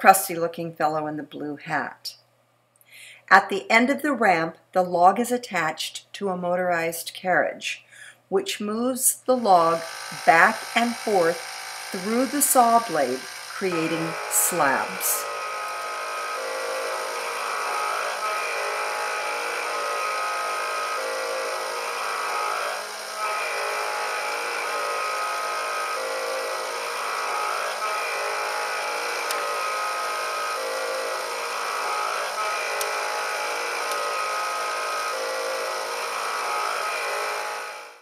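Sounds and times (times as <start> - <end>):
small electric motors whirring: 9.4 - 38.0.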